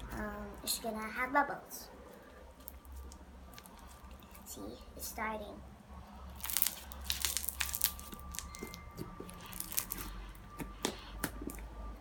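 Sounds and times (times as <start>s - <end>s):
slime crackling and popping: 6.2s - 11.7s.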